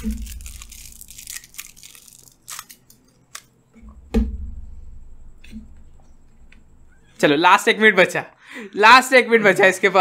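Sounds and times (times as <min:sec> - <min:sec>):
cartons and straws crinkling: 0:00.0 - 0:03.5
thump: 0:03.8 - 0:04.8.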